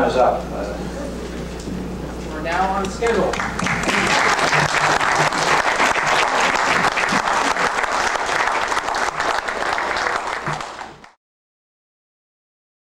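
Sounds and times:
audience applauding: 0:03.0 - 0:11.2.

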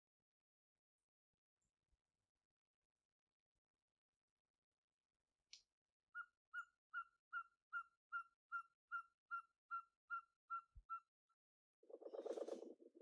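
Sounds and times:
night bird whistled call: 0:06.2 - 0:11.1.

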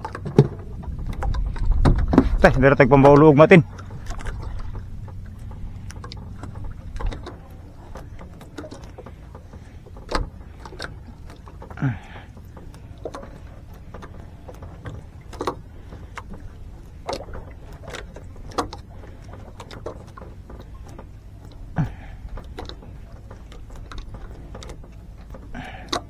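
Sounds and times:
short knocks and clicks: 0:00.0 - 0:11.8
low rumble aboard boat: 0:00.0 - 0:26.0.

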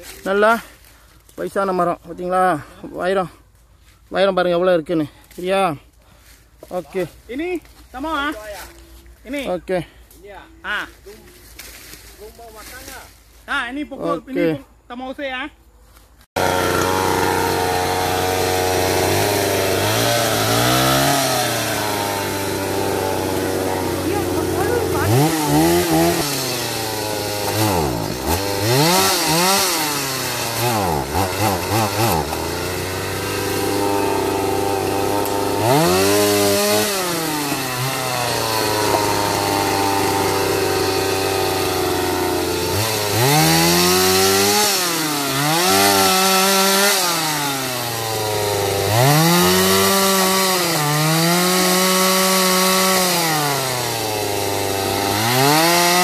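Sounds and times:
chainsaw revving and cutting wood: 0:16.3 - 0:56.0.

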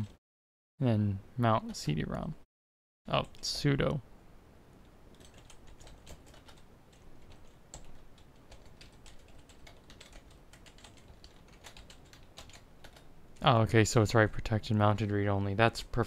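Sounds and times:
computer keyboard typing: 0:05.1 - 0:13.5.

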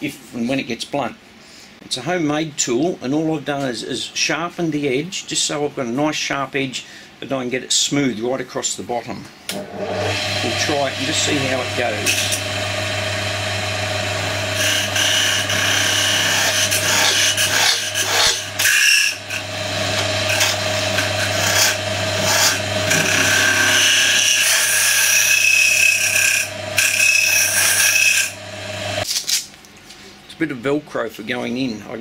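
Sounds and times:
wood lathe motor hum: 0:09.5 - 0:29.0
tool scraping spinning wood: 0:09.8 - 0:29.1.

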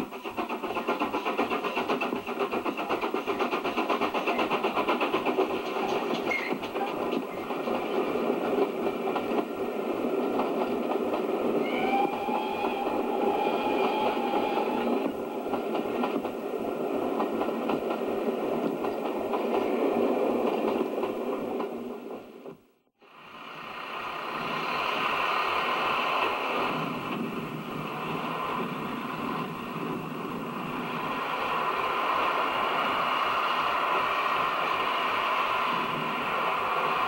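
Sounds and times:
steam locomotive hauling coaches: 0:00.0 - 0:37.0
train passing: 0:00.0 - 0:37.0
videotape hiss: 0:22.1 - 0:37.0.

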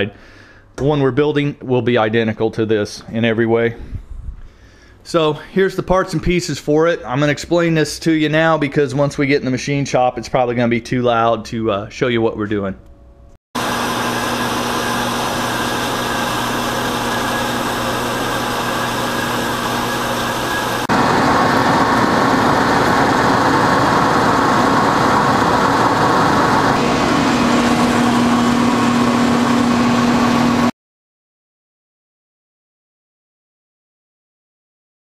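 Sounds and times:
metal lathe turning: 0:13.6 - 0:30.6
band saw humming: 0:13.6 - 0:30.7.

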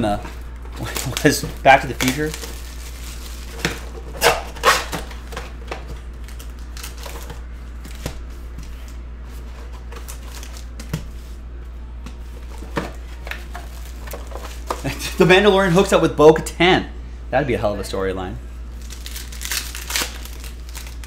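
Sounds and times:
plastic crinkling: 0:00.0 - 0:08.0, 0:12.4 - 0:15.0, 0:18.8 - 0:21.0.

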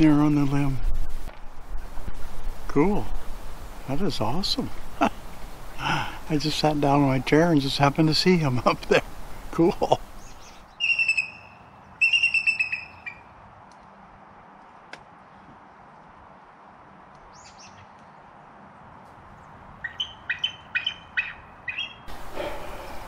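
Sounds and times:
eagle calling: 0:04.7 - 0:13.2, 0:19.8 - 0:23.0.

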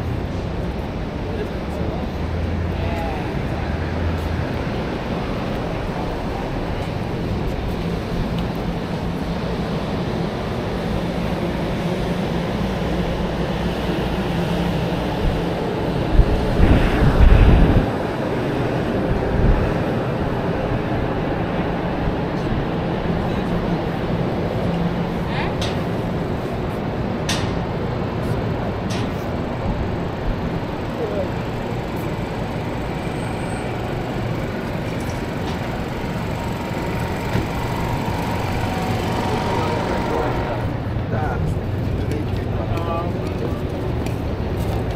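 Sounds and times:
indistinct voices: 0:00.0 - 0:09.0, 0:30.0 - 0:44.9
traffic rumble: 0:00.0 - 0:44.9.

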